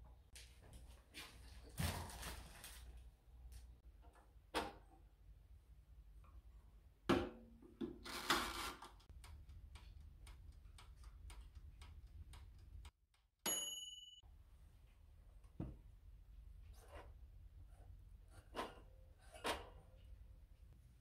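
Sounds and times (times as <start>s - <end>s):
timer ticking: 9.1s - 13.2s
timer bell ding: 13.4s - 14.2s.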